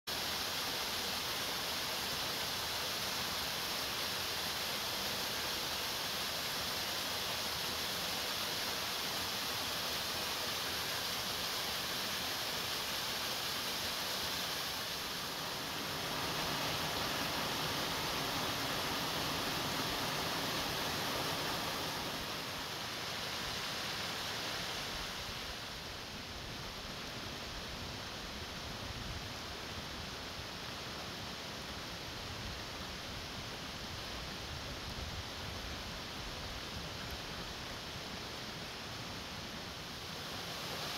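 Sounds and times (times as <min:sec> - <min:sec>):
small waterfall splashing into pool: 0:00.1 - 0:25.8, 0:36.7 - 0:40.9.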